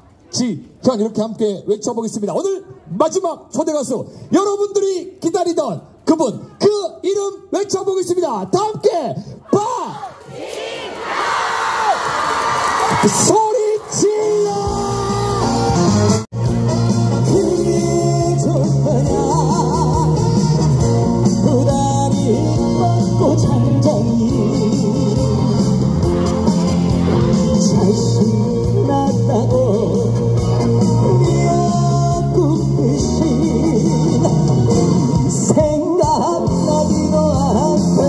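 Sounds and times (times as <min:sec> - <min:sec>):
backing music: 0:14.2 - 0:38.0
man singing into microphone: 0:17.1 - 0:26.2, 0:27.3 - 0:38.0.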